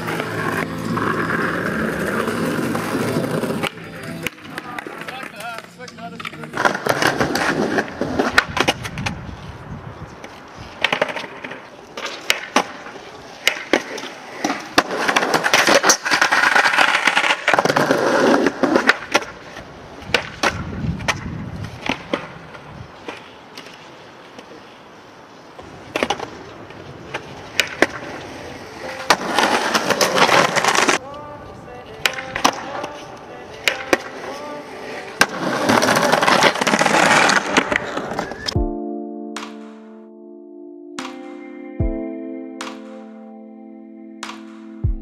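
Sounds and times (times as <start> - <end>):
skateboard striking stone ledge: 0.0 - 9.2, 10.2 - 23.8, 25.8 - 31.0, 31.9 - 38.6
skateboard wheels rolling on stone: 0.0 - 38.6
skateboard tail pops: 6.2 - 9.2, 10.2 - 24.5, 25.9 - 26.5, 27.1 - 28.1.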